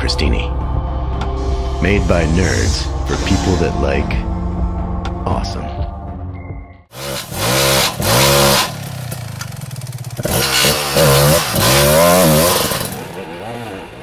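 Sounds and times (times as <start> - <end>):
dirt bike engine revving: 6.9 - 14.0.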